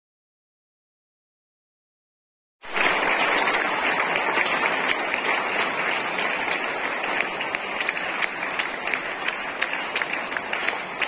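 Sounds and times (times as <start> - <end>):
crowd applauding: 2.6 - 11.0.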